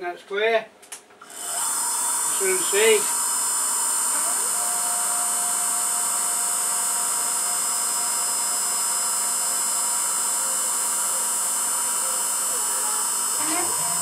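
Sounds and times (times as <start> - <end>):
milling machine whine and hum: 1.2 - 14.0
mid-pitched machine tone: 4.0 - 14.0.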